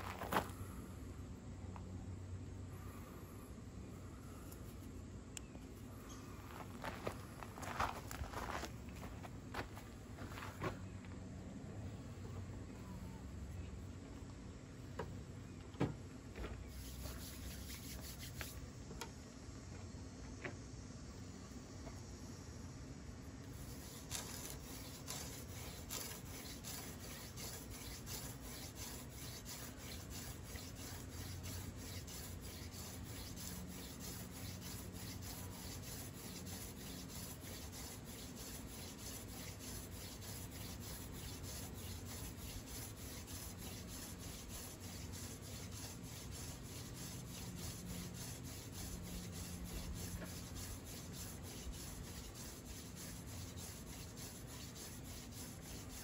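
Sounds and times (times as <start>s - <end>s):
wood rasping on wood: 23.5s - 56.0s.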